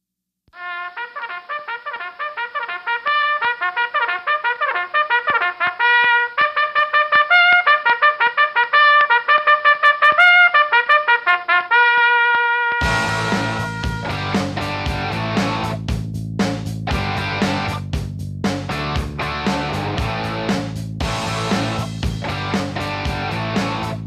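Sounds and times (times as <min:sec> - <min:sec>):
solo trumpet playing: 0:00.6 - 0:14.7.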